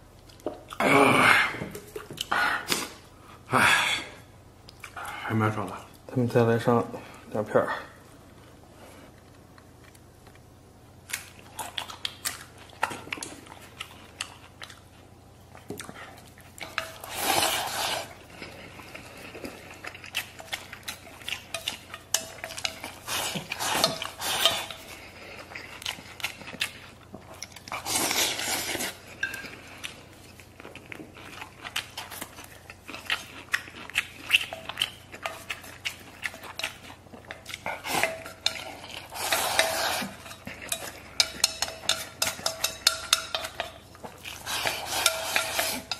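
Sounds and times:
chewing: 0:11.0 - 0:45.9
chopsticks clicking on metal bowl: 0:40.6 - 0:43.8.

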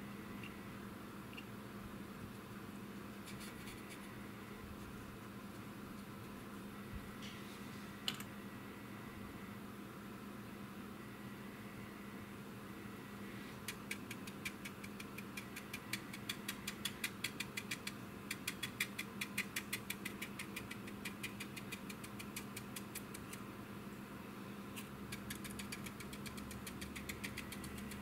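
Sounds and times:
faint steady hum: 0:00.0 - 0:28.0
brush dabbing ticks: 0:13.6 - 0:23.4, 0:24.8 - 0:28.0.

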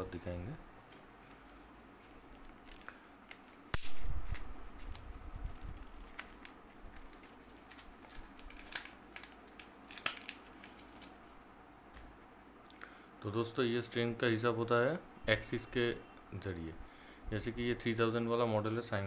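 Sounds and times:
paper crinkling: 0:00.9 - 0:03.6, 0:04.3 - 0:11.3.

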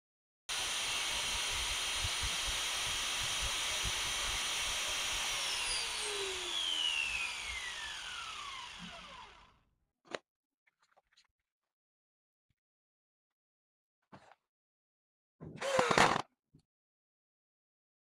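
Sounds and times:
angle grinder motor whining: 0:00.5 - 0:09.6, 0:15.6 - 0:16.2.

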